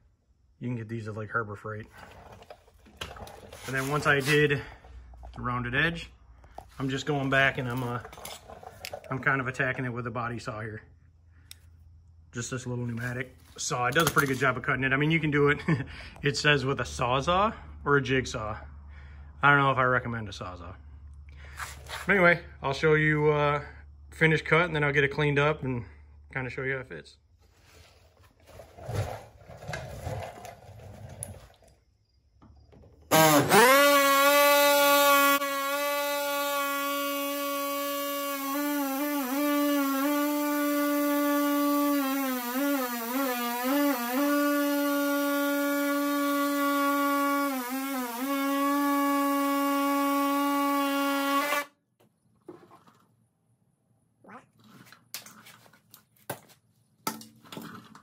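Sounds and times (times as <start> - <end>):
pneumatic saw whining: 33.0 - 51.8.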